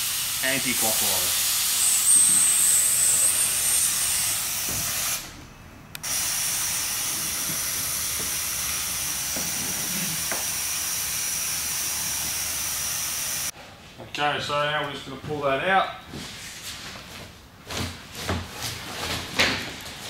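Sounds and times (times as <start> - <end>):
compressed air hissing: 0.0 - 5.4, 6.0 - 13.5.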